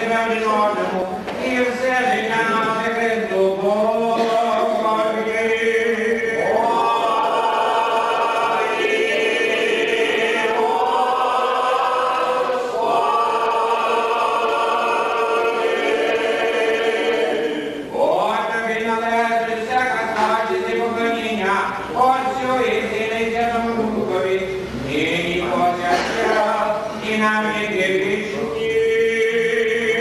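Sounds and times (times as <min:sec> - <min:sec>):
choir singing a cappella: 0:03.6 - 0:18.8, 0:24.6 - 0:30.0.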